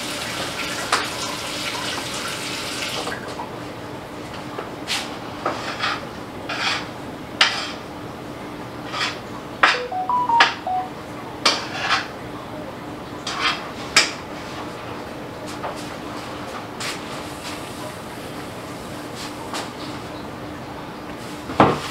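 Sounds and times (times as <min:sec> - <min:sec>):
short electronic beeps: 0:09.8 - 0:10.9.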